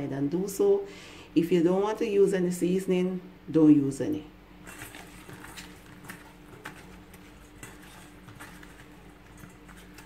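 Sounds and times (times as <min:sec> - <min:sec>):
potato wedges tossed in metal bowl: 0:04.6 - 0:10.0.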